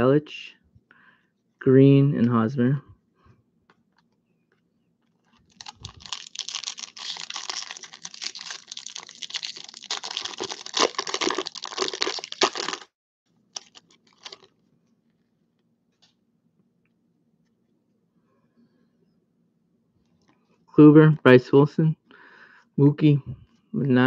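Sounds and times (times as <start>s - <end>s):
foil wrapper tearing and crinkling: 5.4s - 12.9s, 13.6s - 14.5s.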